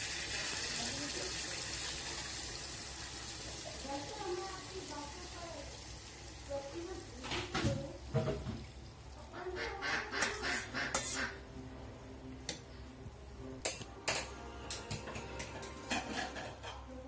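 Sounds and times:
liquid pouring into metal pot: 0.0s - 5.0s.

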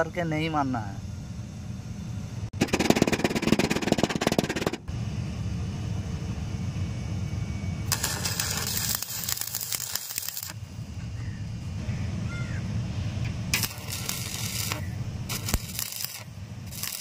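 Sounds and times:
steady low hum: 0.0s - 17.0s
welding arc crackling and sizzling: 7.8s - 10.7s, 13.5s - 17.0s.

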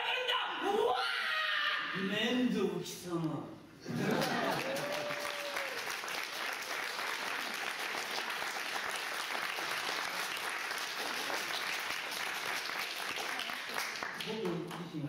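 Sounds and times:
audience applauding: 3.9s - 15.0s.

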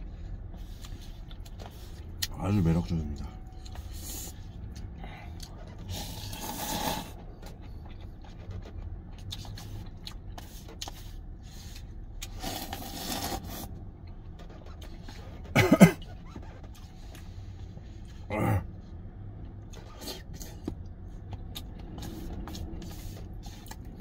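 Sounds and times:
noisy slurping of noodles: 5.9s - 7.2s, 12.2s - 13.7s
person coughing: 15.5s - 16.1s.

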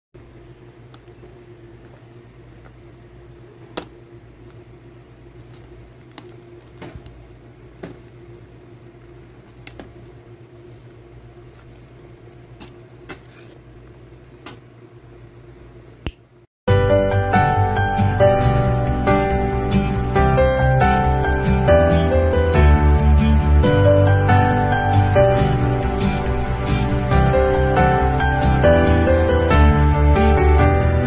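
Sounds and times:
soup simmering in a pot: 0.2s - 16.4s
steady low hum: 0.2s - 16.5s, 17.3s - 31.0s.

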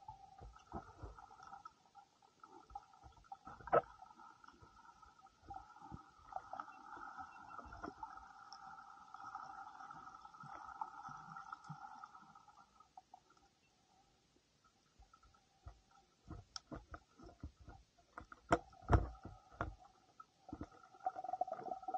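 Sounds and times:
underwater hum of held tones: 0.0s - 21.9s
underwater clicks and knocks: 0.3s - 1.5s, 3.0s - 4.8s, 15.6s - 20.9s.

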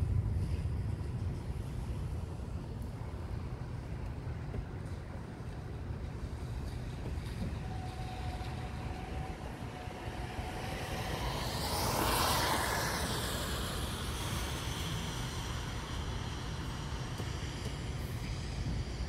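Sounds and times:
steady low rumble: 0.0s - 19.0s
tyres hissing on wet road: 6.1s - 19.0s.

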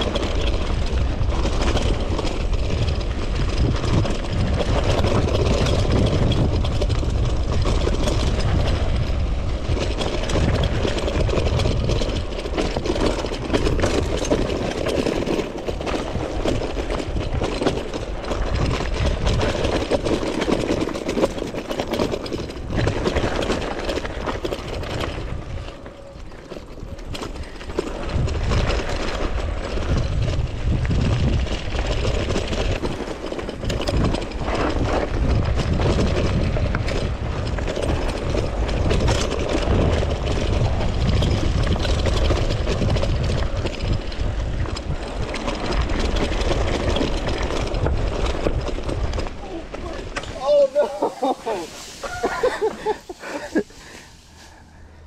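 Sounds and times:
bike knocks and rattles: 0.0s - 54.7s
bike tyres rumbling on gravel: 0.0s - 55.0s
wind buffeting microphone: 0.0s - 55.0s.

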